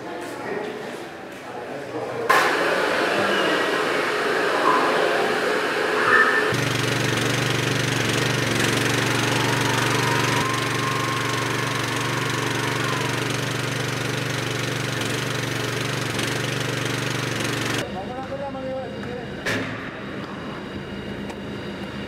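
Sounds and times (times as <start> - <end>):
pressure washer engine droning: 5.3 - 17.9
water jet hissing: 6.6 - 17.8.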